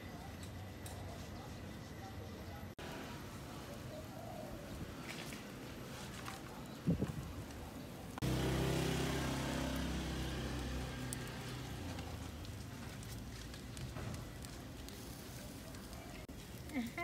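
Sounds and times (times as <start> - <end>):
street traffic noise: 0.0 - 17.0
vehicle engine running: 8.2 - 13.8.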